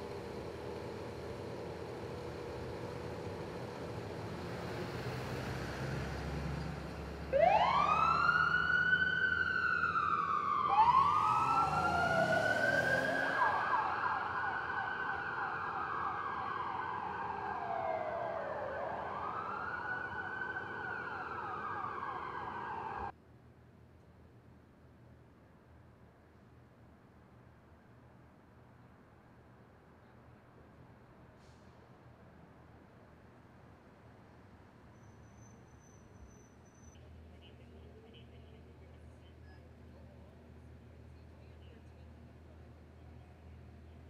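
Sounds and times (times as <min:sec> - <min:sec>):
street noise: 0:00.0 - 0:44.0
emergency sirens wailing: 0:07.2 - 0:23.1
siren high steady tone: 0:07.3 - 0:23.1.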